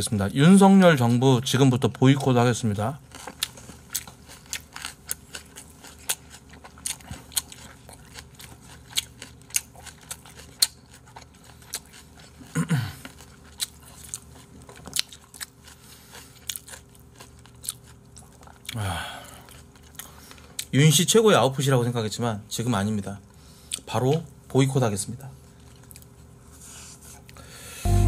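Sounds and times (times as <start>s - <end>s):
chewing: 3.1s - 20.7s, 25.5s - 27.4s.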